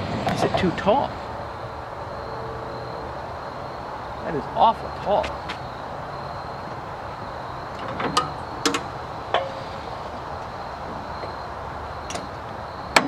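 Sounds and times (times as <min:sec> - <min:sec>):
steady background noise: 0:00.0 - 0:13.0
sharp metallic clicks and knocks: 0:07.7 - 0:09.6.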